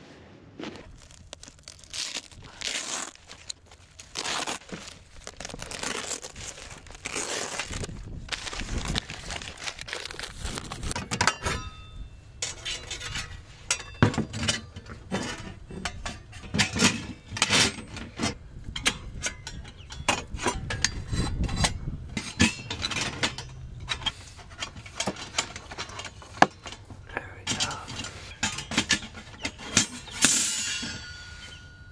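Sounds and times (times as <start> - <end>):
metal plates clinking: 11.0 - 26.9, 27.5 - 31.9.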